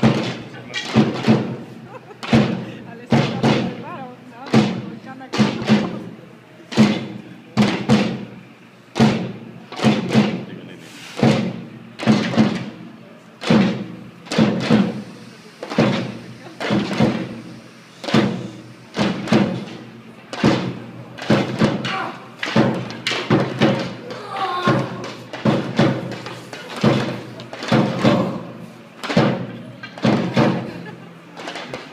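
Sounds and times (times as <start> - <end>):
drum beaten in rhythm: 0.0 - 3.8, 9.0 - 10.5, 11.2 - 12.8, 13.4 - 15.1, 18.0 - 30.8.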